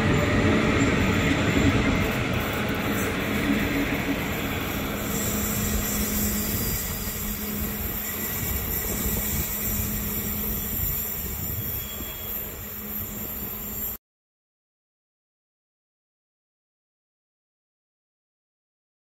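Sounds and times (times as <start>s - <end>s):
train coaches rolling on rails: 0.0s - 14.0s.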